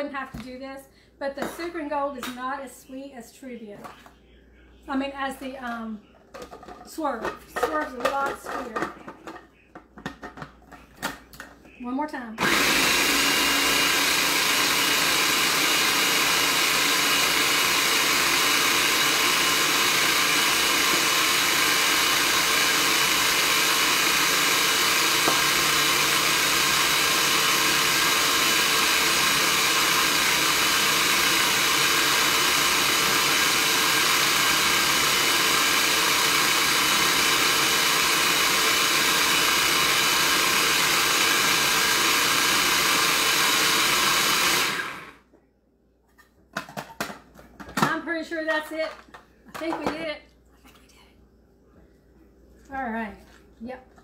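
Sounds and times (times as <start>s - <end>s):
food processor motor running: 12.4s - 45.2s.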